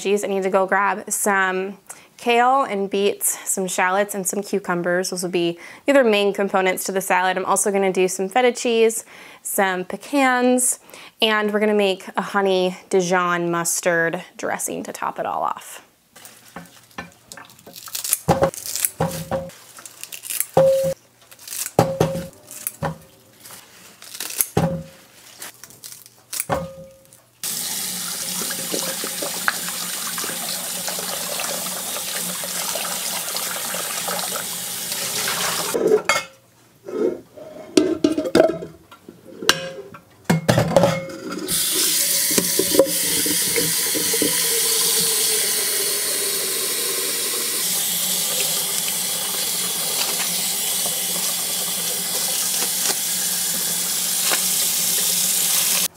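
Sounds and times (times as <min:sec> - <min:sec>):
faucet running into a sink: 0:27.4 - 0:35.8, 0:41.5 - 0:55.9.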